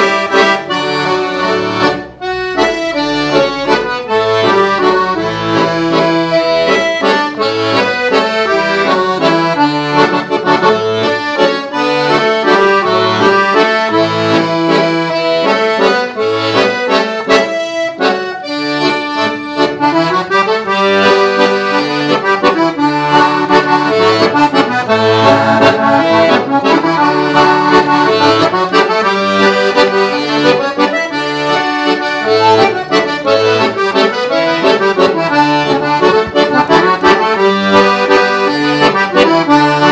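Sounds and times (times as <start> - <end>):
accordion waltz: 0.0 - 39.9.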